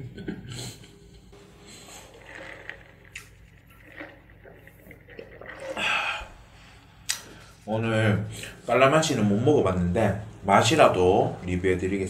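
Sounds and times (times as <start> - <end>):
sipping through a straw: 1.5 - 7.5.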